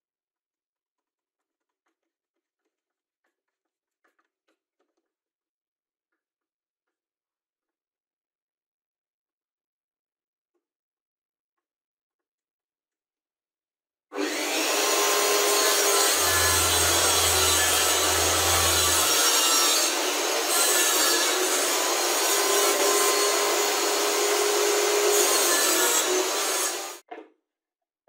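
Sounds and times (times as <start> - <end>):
table saw cutting: 14.1 - 27.0.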